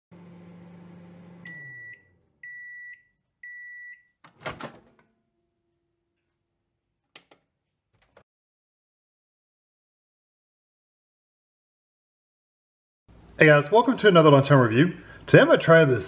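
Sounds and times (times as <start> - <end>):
microwave oven humming: 0.1 - 3.8.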